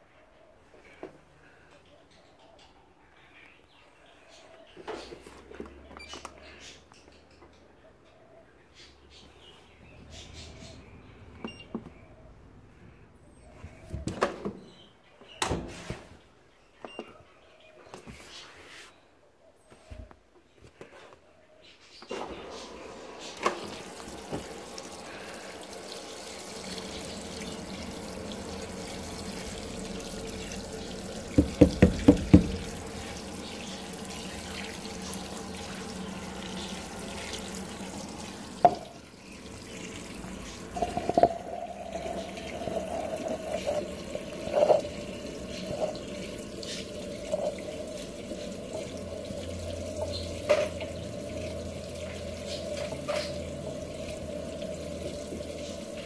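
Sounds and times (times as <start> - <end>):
water spraying into washing machine: 22.1 - 56.0.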